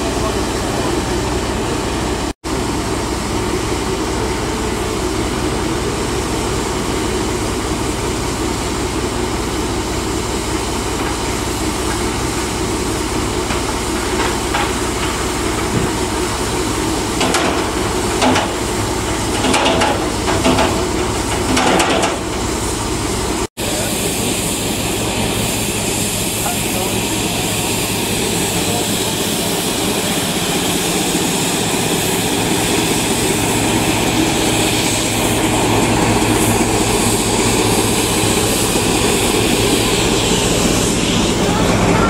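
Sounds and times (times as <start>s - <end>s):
hiss of escaping steam: 23.6s - 41.9s.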